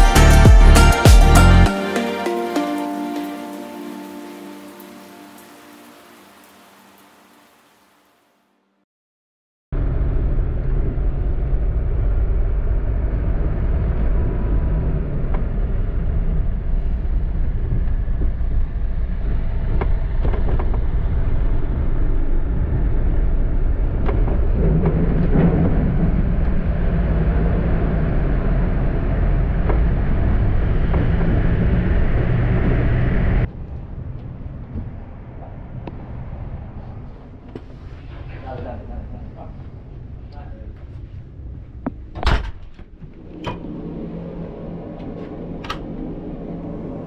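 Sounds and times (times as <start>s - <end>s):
engine and tyre rumble: 9.8s - 47.0s.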